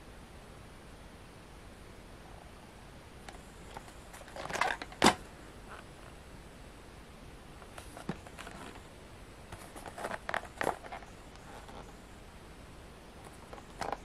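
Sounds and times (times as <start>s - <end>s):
cardboard box scraping rustle: 7.7s - 8.9s, 9.5s - 12.0s.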